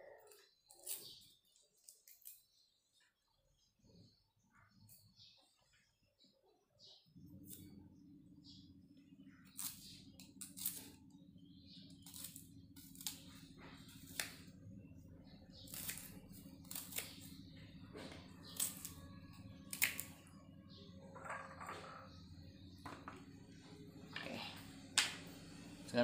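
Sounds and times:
low hum: 7.0s - 26.0s.

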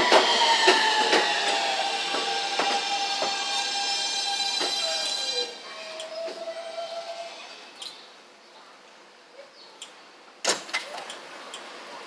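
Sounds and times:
steady tone from train: 0.0s - 7.8s.

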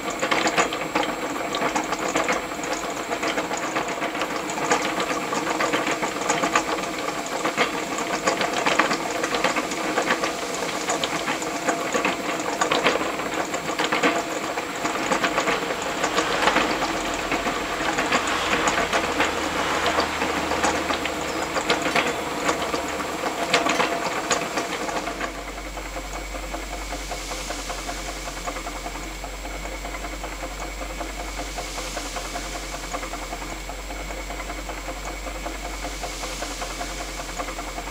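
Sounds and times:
model engine clattering: 0.0s - 25.6s
steady hiss: 0.0s - 37.9s
low hum: 14.0s - 28.8s.

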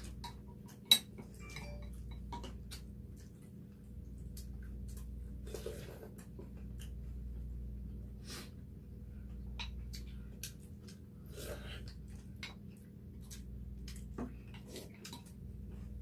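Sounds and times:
steady low hum: 0.0s - 16.0s
chewing: 2.4s - 7.5s, 9.2s - 16.0s.

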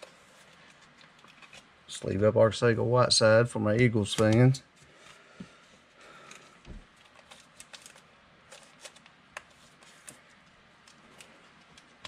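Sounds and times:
trading cards clicking and rustling: 0.4s - 1.7s, 4.0s - 5.2s, 6.2s - 12.0s.

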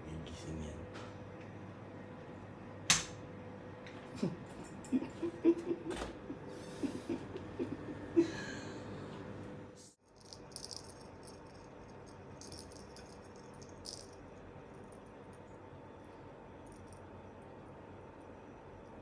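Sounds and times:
cat collar bell rattling: 10.1s - 14.2s.

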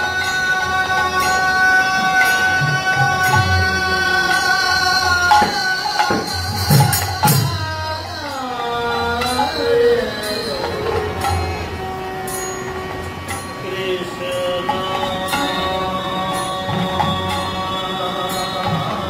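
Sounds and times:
man singing: 0.0s - 12.3s, 13.6s - 19.0s
harmonium: 0.0s - 19.0s
small cymbals jingling: 0.0s - 19.0s.

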